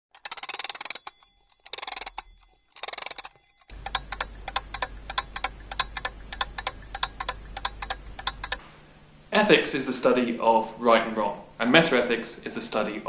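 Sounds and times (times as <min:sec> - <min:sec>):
clock ticking quickly: 0:00.1 - 0:08.6
bell ringing: 0:00.2 - 0:03.8.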